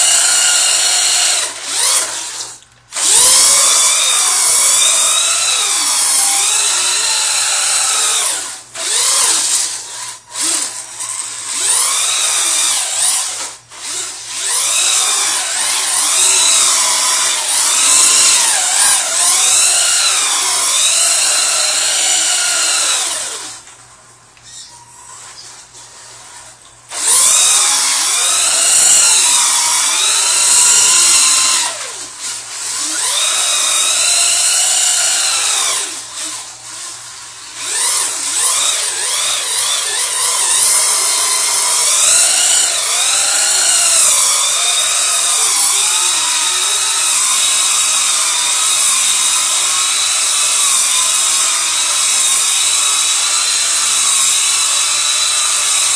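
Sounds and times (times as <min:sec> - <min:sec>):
electric motor whining: 0:24.5 - 0:55.9.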